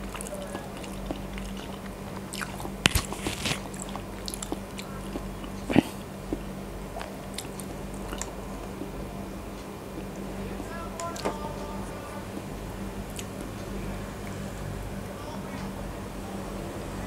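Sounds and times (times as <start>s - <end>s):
person chewing: 0.0s - 11.4s, 13.1s - 13.6s
faint steady hum: 0.0s - 17.0s.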